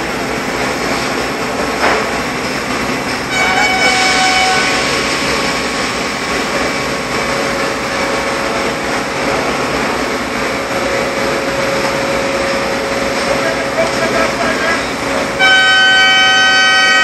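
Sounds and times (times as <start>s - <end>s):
crane diesel engine running: 0.0s - 17.0s.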